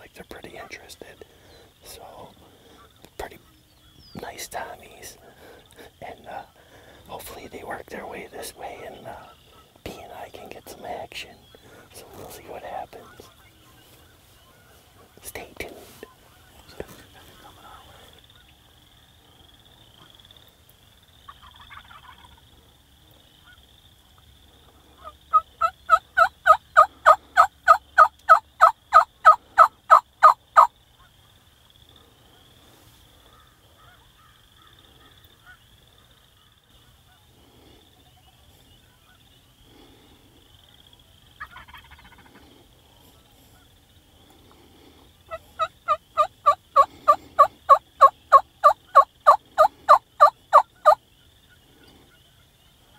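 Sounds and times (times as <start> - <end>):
turkey yelps: 25.0 - 30.7, 41.4 - 42.3, 45.3 - 51.0.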